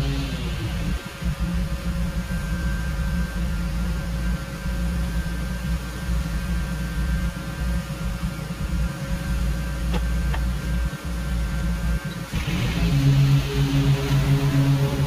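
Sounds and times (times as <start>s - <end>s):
lawn mower running: 0.0s - 1.2s, 12.3s - 15.0s.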